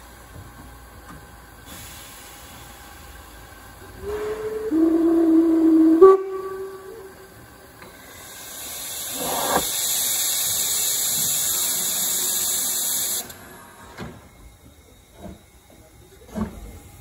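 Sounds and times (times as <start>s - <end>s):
steam hissing from drain cocks: 1.6s - 13.7s
steam locomotive whistle: 4.0s - 7.5s
deeper steam rush: 4.0s - 10.4s.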